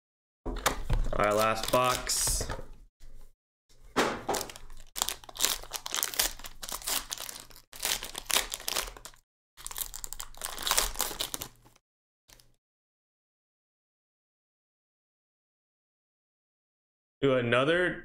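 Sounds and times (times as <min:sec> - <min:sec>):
foil card pack crinkling: 0:00.9 - 0:02.5, 0:04.2 - 0:12.6.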